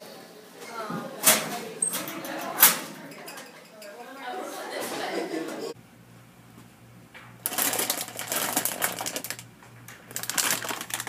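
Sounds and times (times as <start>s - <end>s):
plastic snack bag rustling: 7.4s - 9.4s, 10.0s - 11.0s.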